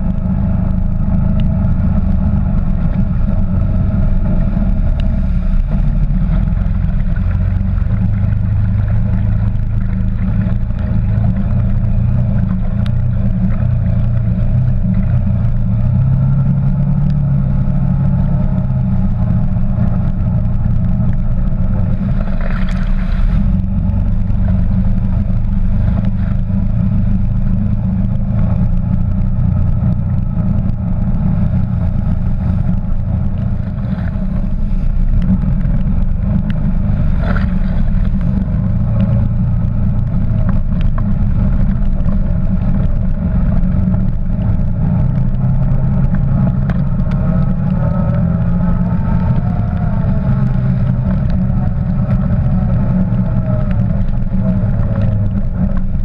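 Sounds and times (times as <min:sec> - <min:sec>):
quad bike engine rumbling: 0:00.0 - 0:56.0.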